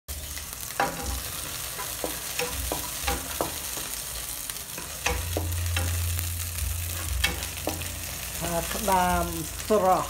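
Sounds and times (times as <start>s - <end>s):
garlic sizzling in oil: 0.1s - 10.0s
chopsticks knocking on pan: 1.8s - 4.0s, 7.2s - 8.0s.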